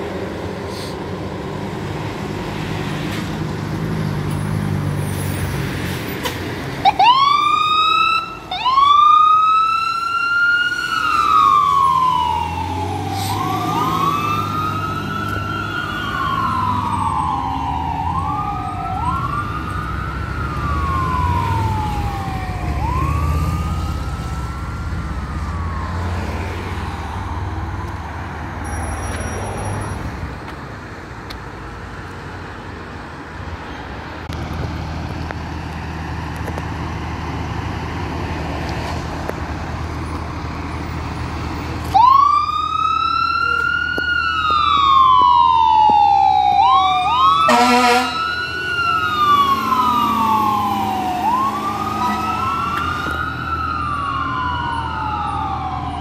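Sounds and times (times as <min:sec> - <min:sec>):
low traffic noise: 0:00.0 - 0:56.0
truck engine rumble: 0:00.0 - 0:56.0
fire engine siren wailing: 0:06.7 - 0:29.2, 0:35.5 - 0:56.0.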